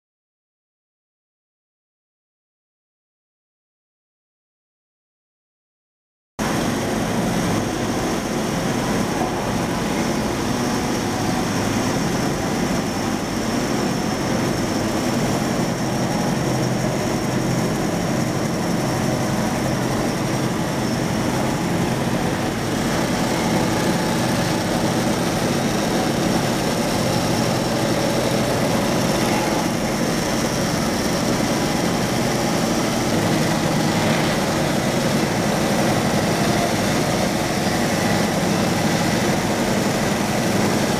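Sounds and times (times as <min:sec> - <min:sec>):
band saw cutting timber: 0:20.1 - 0:40.9.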